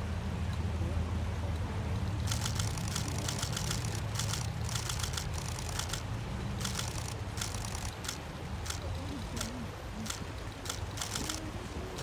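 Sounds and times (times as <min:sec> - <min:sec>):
sharp clicks: 0:02.0 - 0:12.0.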